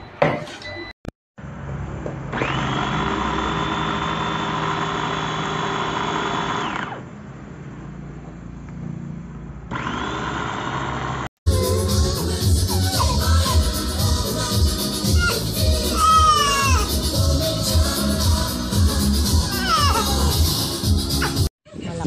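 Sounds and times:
food chopper motor whining: 0:02.2 - 0:07.1, 0:09.7 - 0:11.3.

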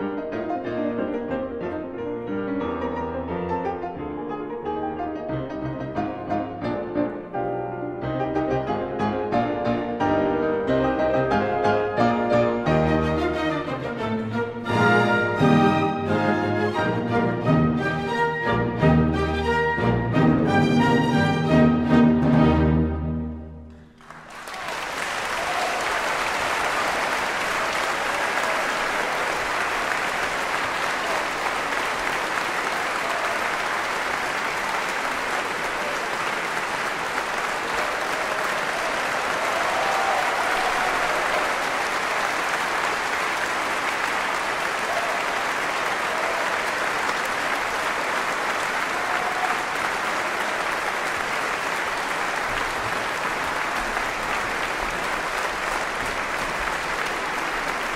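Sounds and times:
audience applauding: 0:23.7 - 0:57.9.

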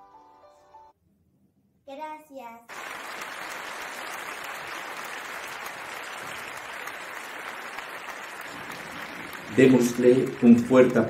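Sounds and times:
many hands clapping: 0:02.7 - 0:11.0.

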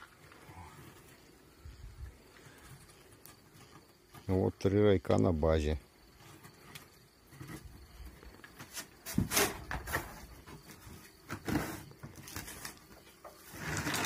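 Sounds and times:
rope dragging across wooden boxes: 0:08.6 - 0:14.0.

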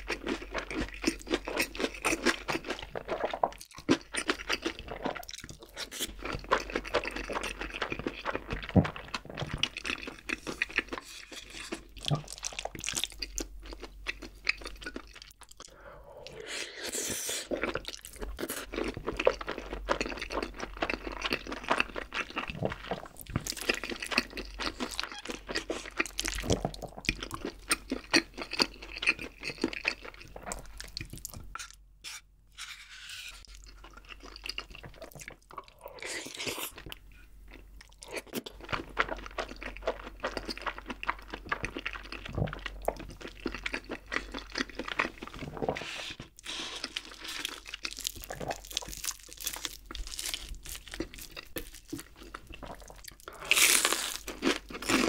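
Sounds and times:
wet chewing mouth sounds: 0:33.4 - 0:55.0.

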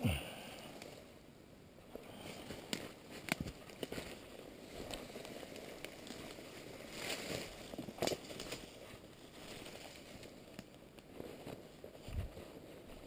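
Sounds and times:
rustling through dry leaves: 0:02.2 - 0:13.0
twigs snapping: 0:02.4 - 0:04.2, 0:04.8 - 0:08.7.

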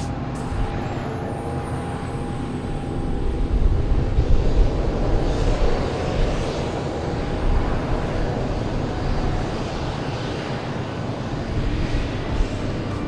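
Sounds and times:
jet airliner engines running: 0:00.0 - 0:13.0.

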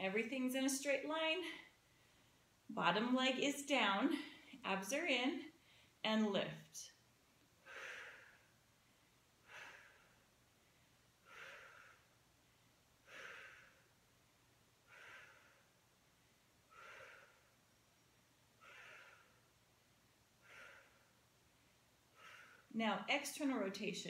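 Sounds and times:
woman breathing out: 0:07.6 - 0:08.6, 0:09.4 - 0:10.3, 0:11.2 - 0:12.2, 0:13.0 - 0:13.9, 0:14.9 - 0:15.7, 0:16.7 - 0:17.6, 0:18.6 - 0:19.5, 0:20.4 - 0:21.2, 0:22.2 - 0:22.7.

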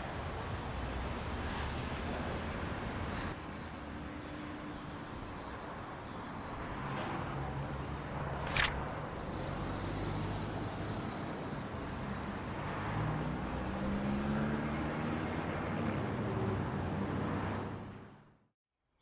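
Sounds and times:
sharp click: 0:08.4 - 0:08.9.

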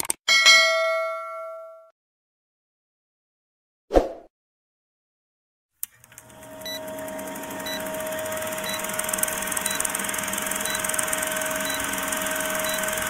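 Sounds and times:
film projector whirring hiss: 0:05.8 - 0:13.0.

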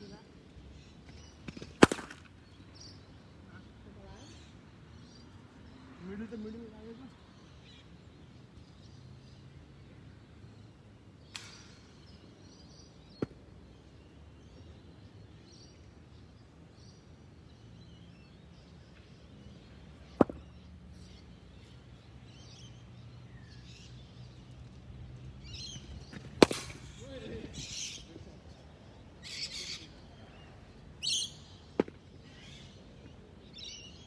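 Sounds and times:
birds chirping: 0:00.0 - 0:34.0
cricket bat striking ball: 0:01.5 - 0:02.2, 0:20.1 - 0:20.5, 0:26.1 - 0:26.9, 0:31.7 - 0:32.0.

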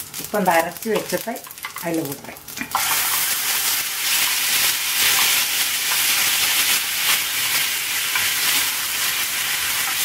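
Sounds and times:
paste sizzling in oil: 0:00.0 - 0:10.0.

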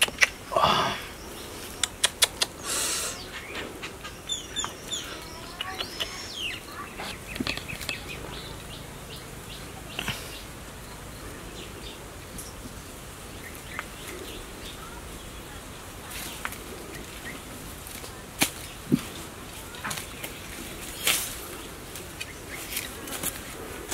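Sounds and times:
birds chirping: 0:00.0 - 0:23.9
hands rustling dry leaves: 0:00.0 - 0:23.9
sharp clicks: 0:01.8 - 0:02.6, 0:05.5 - 0:06.5.

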